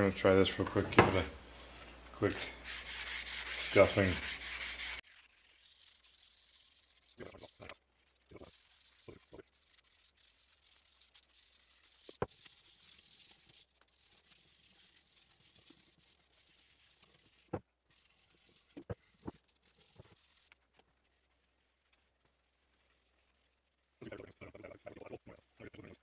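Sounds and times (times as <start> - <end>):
sandpaper sanding wood: 2.6 - 21.8.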